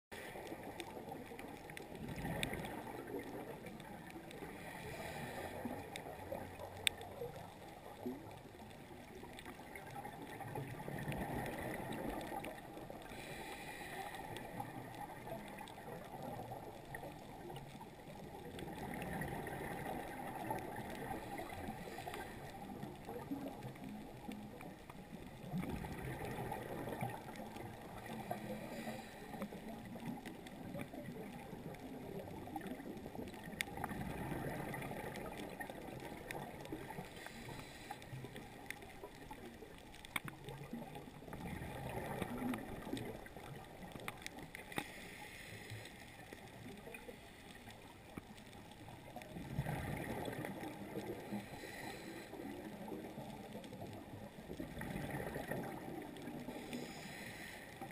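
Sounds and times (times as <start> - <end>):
exhaled bubbles gurgling: 0.1 - 57.9
regulator breathing hiss: 13.1 - 14.4, 28.2 - 29.4, 37.1 - 38.1, 44.8 - 46.0, 51.4 - 52.4, 56.5 - 57.8.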